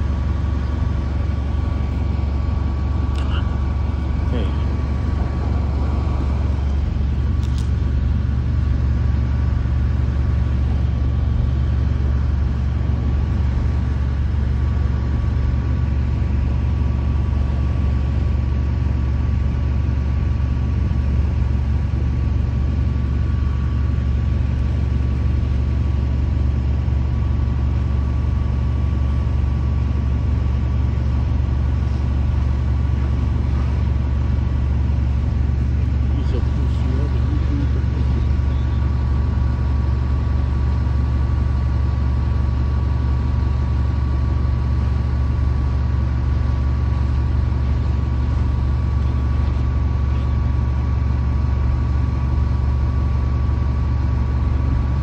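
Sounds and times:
faint steady whine: 0:00.0 - 0:55.0
heavy truck engine droning: 0:00.0 - 0:55.0.

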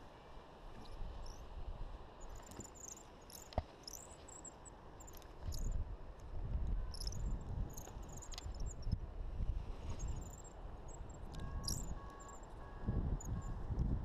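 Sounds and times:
wind buffeting microphone: 0:05.5 - 0:14.0
high chirping calls: 0:06.9 - 0:08.8, 0:11.3 - 0:12.4.

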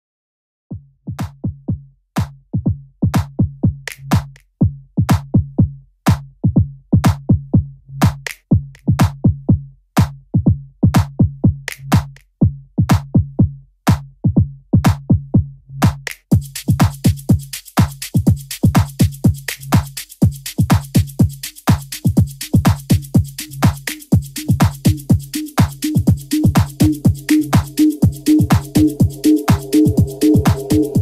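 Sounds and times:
electronic music with drum machine: 0:15.8 - 0:31.0.

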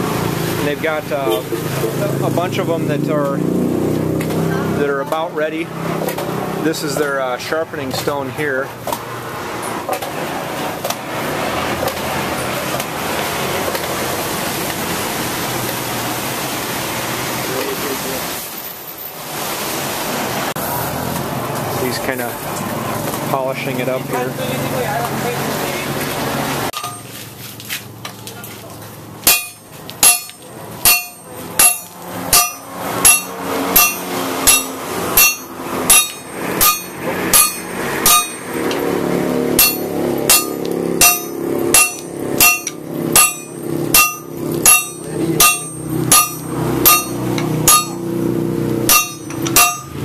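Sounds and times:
sledgehammer ringing on metal: 0:26.8 - 0:27.1, 0:29.2 - 0:38.6, 0:39.6 - 0:48.2, 0:48.9 - 0:50.0.

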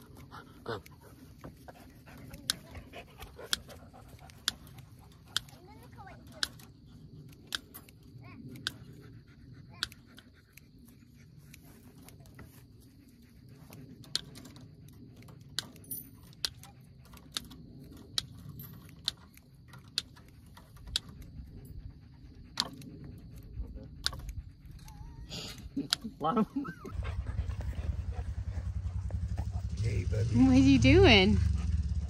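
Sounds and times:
metallic clicks of wire fencing: 0:14.0 - 0:21.7.

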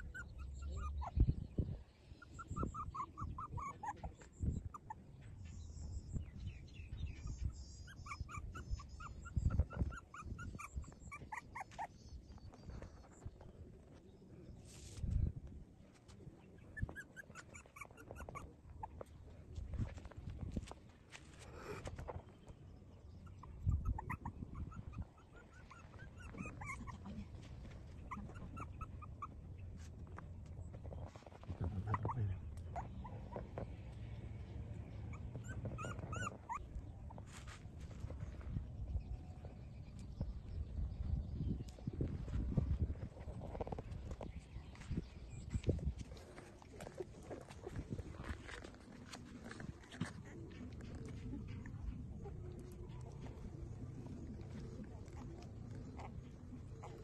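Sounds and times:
puppy whimpering: 0:00.0 - 0:01.4, 0:02.2 - 0:05.0, 0:07.4 - 0:12.0, 0:16.7 - 0:19.1, 0:23.2 - 0:29.4, 0:31.8 - 0:33.7, 0:35.1 - 0:37.2, 0:54.3 - 0:57.0.

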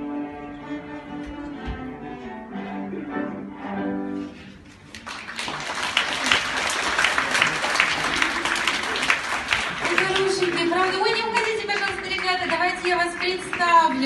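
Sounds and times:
cello ensemble playing: 0:00.0 - 0:05.0
audience applauding: 0:04.8 - 0:14.0.

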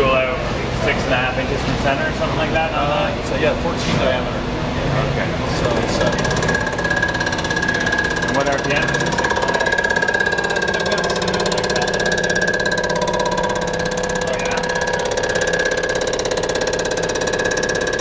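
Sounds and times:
machine whine with fast pulsing: 0:05.4 - 0:18.0.

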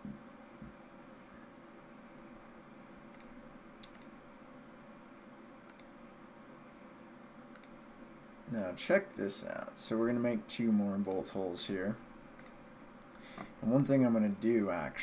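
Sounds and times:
low room hum: 0:00.0 - 0:15.0
computer mouse and keyboard clicks: 0:03.1 - 0:04.2, 0:07.5 - 0:07.8.

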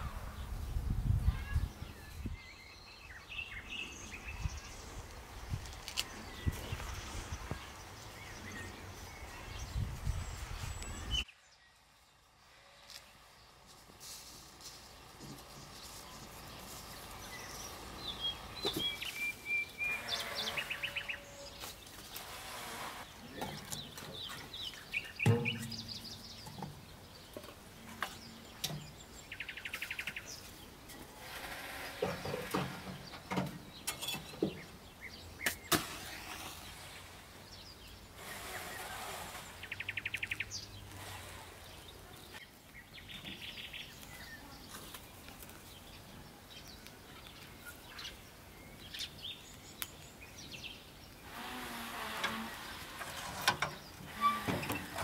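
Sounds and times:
birds chirping and trilling: 0:00.0 - 0:13.7, 0:14.6 - 0:55.0
metallic clang: 0:25.2 - 0:26.7
firewood knocking and clattering: 0:25.2 - 0:27.6.

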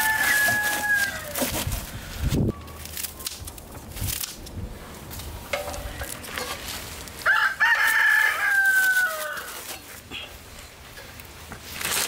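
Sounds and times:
rooster crowing: 0:00.0 - 0:01.5, 0:07.2 - 0:09.6
handling rustles: 0:00.0 - 0:12.0.

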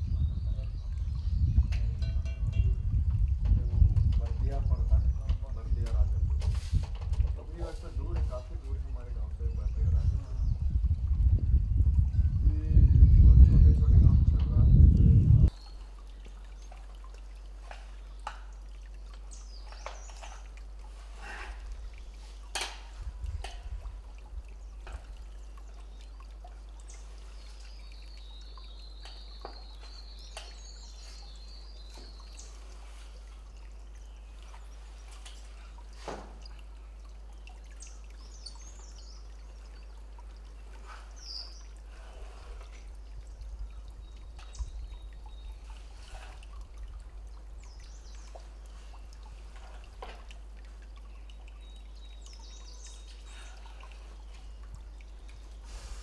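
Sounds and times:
stream trickling over rocks: 0:00.0 - 0:56.0
low rumble: 0:09.0 - 0:15.5.

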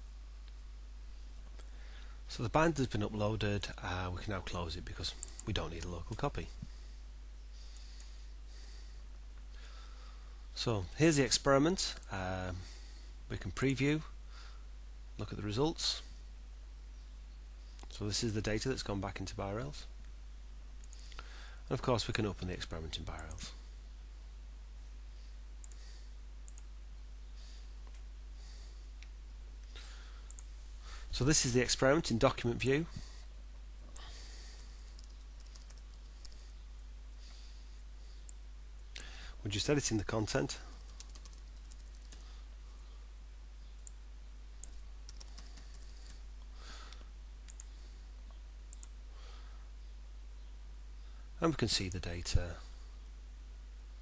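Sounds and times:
steady low hum: 0:00.0 - 0:54.0
faint mouse clicks: 0:05.2 - 0:06.7, 0:17.8 - 0:18.0, 0:25.6 - 0:26.7, 0:29.0 - 0:30.5, 0:33.9 - 0:36.5, 0:40.8 - 0:42.3, 0:44.6 - 0:46.2, 0:46.9 - 0:49.0
keyboard typing: 0:34.9 - 0:36.5, 0:40.7 - 0:42.3, 0:44.6 - 0:46.2.

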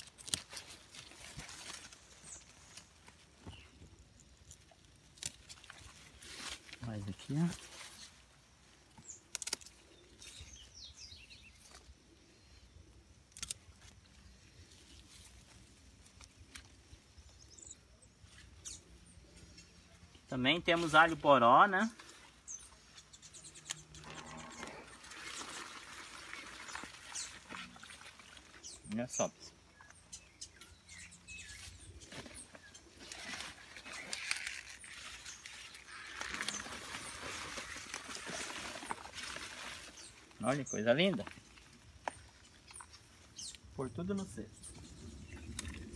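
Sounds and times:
roots tearing out of soil: 0:00.0 - 0:08.3, 0:09.0 - 0:10.6, 0:13.3 - 0:14.0, 0:23.6 - 0:28.7, 0:31.5 - 0:40.5
leaves rustling and crackling: 0:00.0 - 0:12.2, 0:13.0 - 0:45.9
pruning shears snipping: 0:09.0 - 0:09.8, 0:13.3 - 0:13.7
faint bird chirps: 0:22.3 - 0:38.3.

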